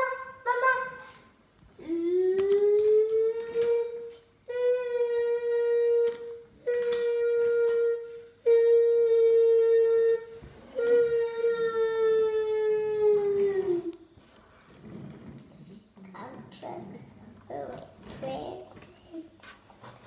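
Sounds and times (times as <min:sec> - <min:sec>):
child making hooting train sound: 0:00.0 - 0:01.2.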